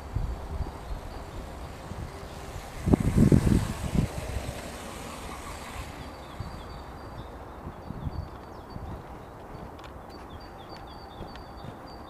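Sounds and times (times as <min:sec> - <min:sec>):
rc car motors running: 0:00.0 - 0:07.4.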